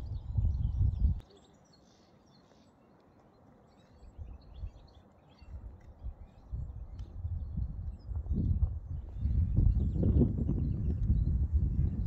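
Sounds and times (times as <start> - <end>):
low rumble on microphone: 0.0 - 1.2, 5.5 - 12.0
songbirds chirping: 0.0 - 12.0.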